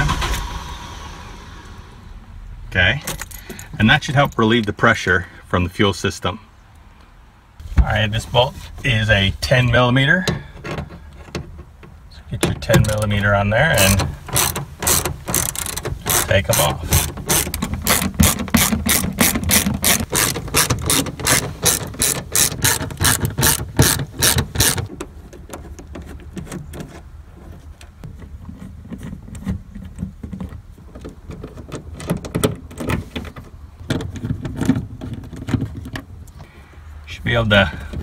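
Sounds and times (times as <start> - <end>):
socket ratchet clicking: 13.8 - 24.9.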